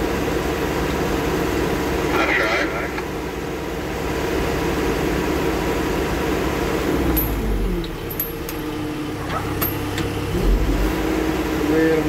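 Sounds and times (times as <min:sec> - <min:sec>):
log loader engine under load: 0:03.5 - 0:12.0.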